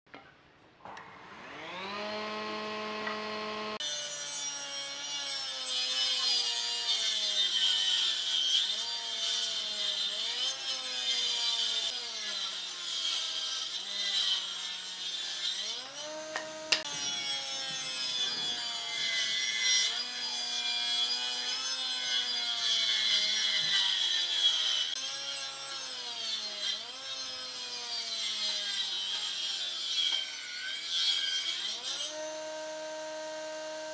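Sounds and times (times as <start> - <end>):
saw motor whine: 1.2 - 5.6, 15.7 - 23.7, 32.1 - 33.9.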